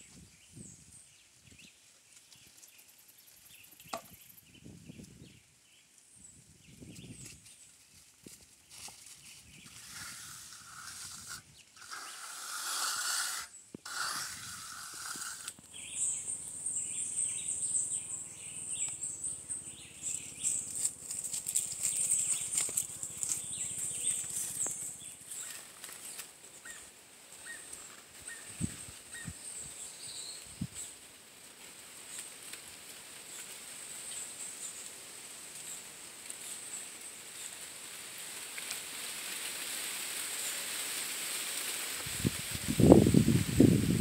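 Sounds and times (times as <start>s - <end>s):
hiss: 9.7s - 15.6s, 37.4s - 44.0s
high-pitched insect drone: 13.9s - 25.2s.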